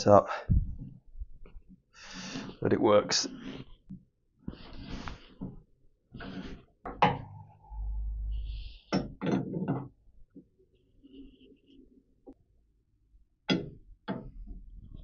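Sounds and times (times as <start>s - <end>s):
low rumble: 7.2s - 8.9s.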